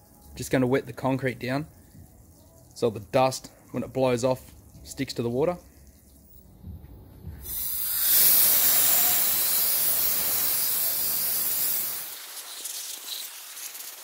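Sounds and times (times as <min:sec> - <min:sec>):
air blow gun hissing: 0:07.4 - 0:14.0.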